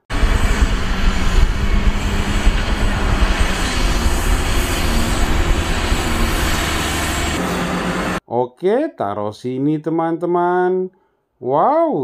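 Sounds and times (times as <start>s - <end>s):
truck diesel engine rumbling: 0.0s - 8.2s.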